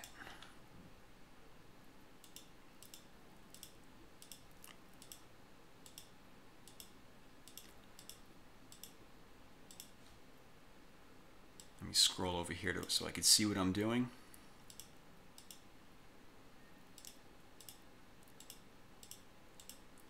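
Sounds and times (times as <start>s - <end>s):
faint computer mouse clicks: 2.2s - 5.2s, 5.8s - 9.0s, 9.7s - 10.0s, 14.7s - 15.6s, 17.0s - 20.0s.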